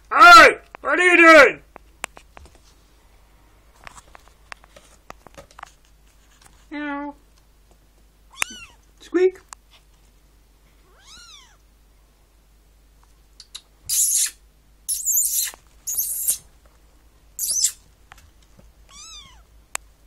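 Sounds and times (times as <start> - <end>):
kitten meowing: 8.3 - 8.8, 10.9 - 11.6, 13.9 - 16.4, 17.4 - 17.8, 18.9 - 19.5.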